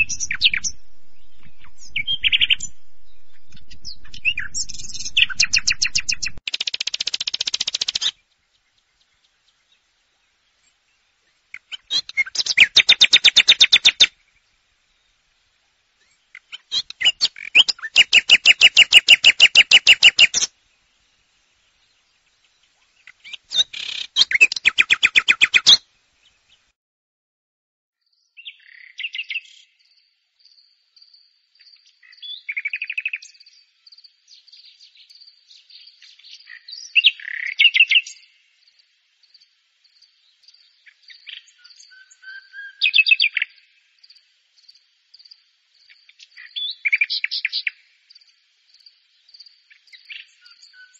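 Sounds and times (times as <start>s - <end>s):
nightingale singing: 0.0s - 10.9s, 11.5s - 14.2s, 16.0s - 20.5s, 21.7s - 26.6s, 28.1s - 38.5s, 39.4s - 50.9s
faint high ticks: 6.5s - 8.1s.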